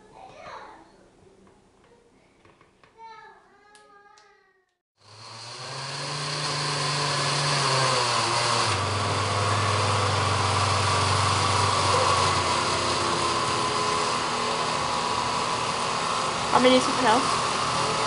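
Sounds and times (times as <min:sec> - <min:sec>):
blender chopping fruit: 0:05.0 - 0:18.0.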